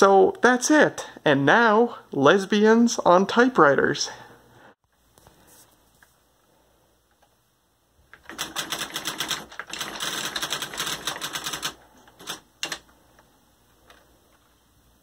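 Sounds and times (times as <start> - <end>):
electronic typewriter striking characters: 8.2 - 12.8.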